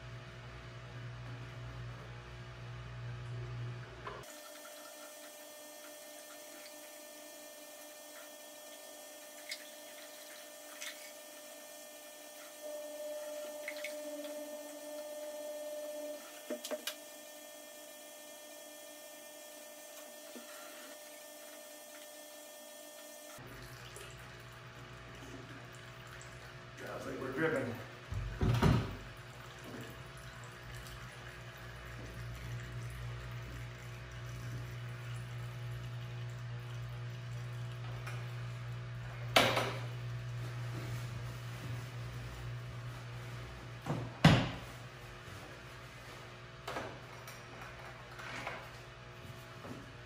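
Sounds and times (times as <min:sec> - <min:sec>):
liquid trickling: 0:23.4 - 0:40.5.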